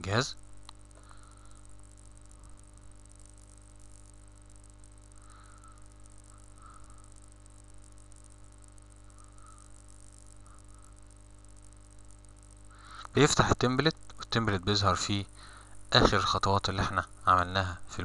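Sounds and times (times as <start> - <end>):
low electrical hum: 0.0 - 18.0
microphone hiss: 0.0 - 18.0.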